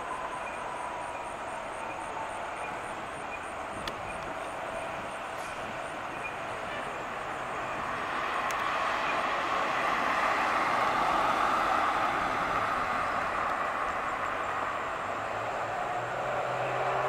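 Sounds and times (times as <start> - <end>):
car driving past: 5.4 - 17.0.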